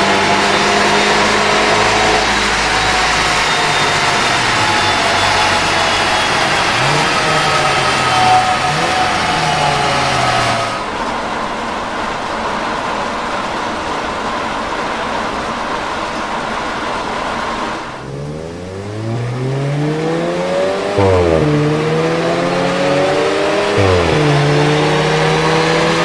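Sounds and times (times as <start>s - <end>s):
car engine revving on dyno: 0.0s - 10.9s, 17.3s - 26.0s.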